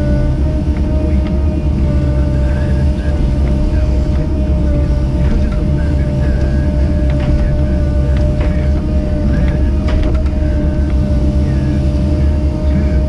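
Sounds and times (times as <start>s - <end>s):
diesel engine running: 0.0s - 13.0s
steady whine: 0.0s - 13.0s
excavator arm knocks: 5.0s - 11.0s.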